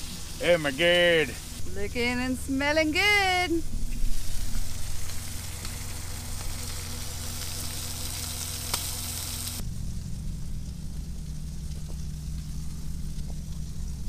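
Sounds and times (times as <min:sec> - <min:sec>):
fish sizzling in a pan: 0:00.0 - 0:10.0
low hum: 0:00.0 - 0:14.0.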